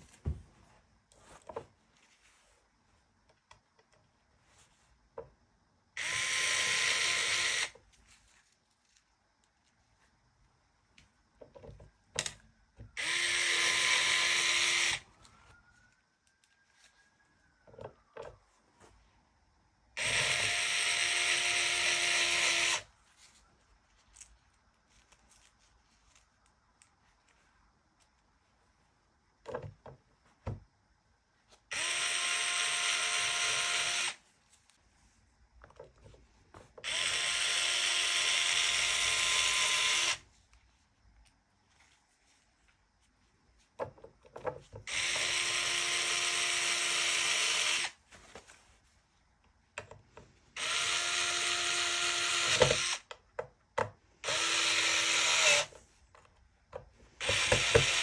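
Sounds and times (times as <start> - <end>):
small electric drill running: 6.0 - 7.8, 13.0 - 15.1, 20.0 - 22.9, 31.7 - 34.2, 36.8 - 40.2, 44.8 - 48.0, 50.5 - 53.1, 54.2 - 55.8, 57.2 - 58.0.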